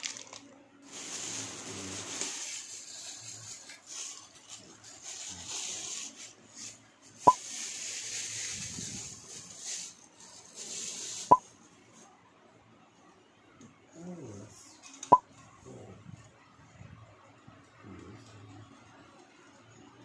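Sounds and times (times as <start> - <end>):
plastic wrapping crinkling: 0.0 - 11.5.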